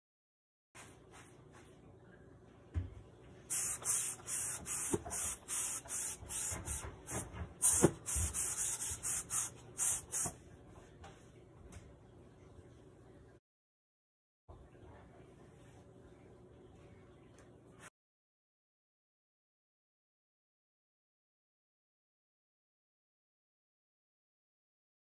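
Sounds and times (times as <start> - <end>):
scrubbing steel sink: 3.5 - 10.3.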